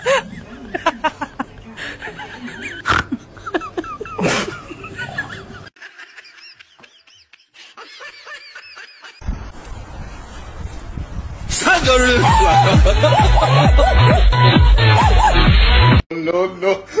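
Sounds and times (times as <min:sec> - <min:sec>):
person laughing: 0:00.0 - 0:09.2, 0:12.0 - 0:15.5.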